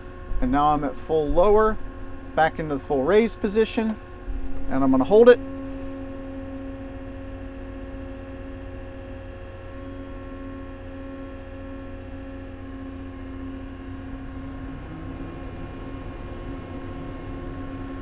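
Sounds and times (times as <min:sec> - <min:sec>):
diesel engine at high idle: 0:00.0 - 0:18.0.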